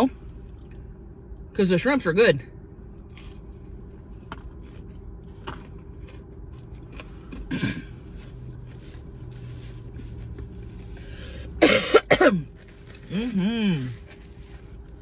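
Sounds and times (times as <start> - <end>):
low hum in car cabin: 0.0 - 15.0
quiet chewing: 2.8 - 11.1.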